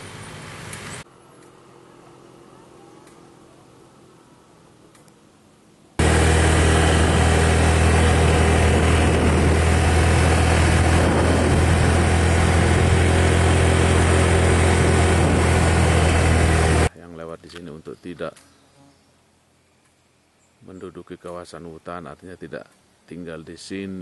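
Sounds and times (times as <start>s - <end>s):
vehicle engine running: 6.0s - 16.9s.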